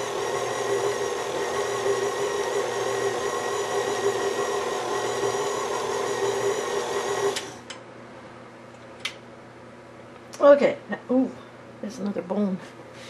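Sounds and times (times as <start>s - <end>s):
stand mixer running: 0.0s - 7.7s.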